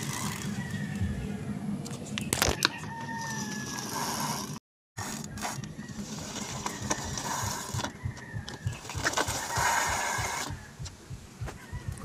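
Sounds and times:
bicycle wheel clicking: 0.0s - 0.6s, 3.3s - 10.6s.

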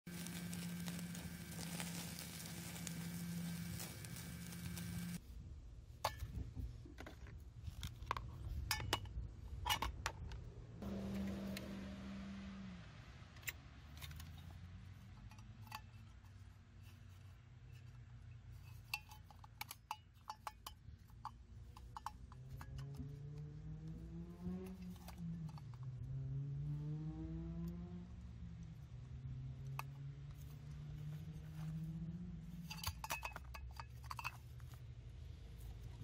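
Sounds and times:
low steady hum: 0.1s - 26.7s
light metal clinks and clicks: 18.5s - 23.0s, 32.6s - 34.8s.

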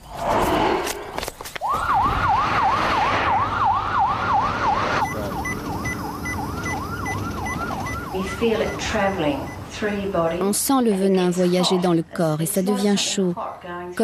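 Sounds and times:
ambulance siren yelping: 1.6s - 10.4s.

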